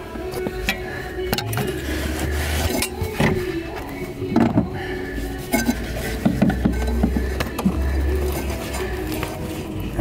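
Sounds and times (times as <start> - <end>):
gloved hand rubbing hose: 1.6 - 4.2, 4.8 - 10.0.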